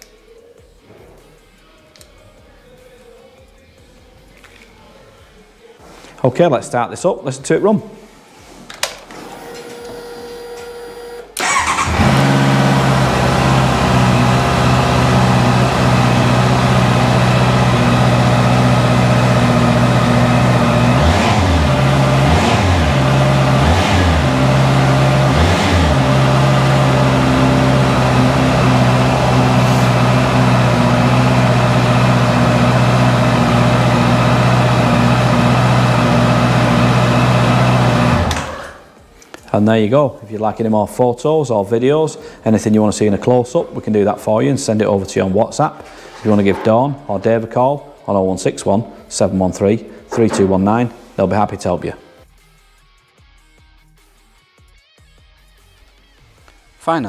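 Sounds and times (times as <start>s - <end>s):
motorcycle engine idling: 11.4s - 38.2s
motorcycle engine revving: 11.4s - 38.9s.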